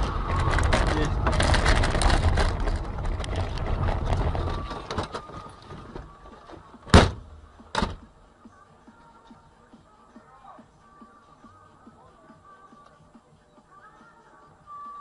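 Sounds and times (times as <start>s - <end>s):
vehicle rumble and rattle: 0.0s - 8.1s.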